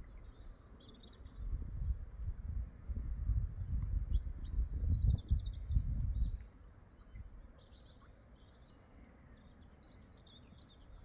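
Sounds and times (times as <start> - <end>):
small songbirds singing: 0.0 - 2.0, 3.4 - 11.0
low rumble on microphone: 1.3 - 6.5.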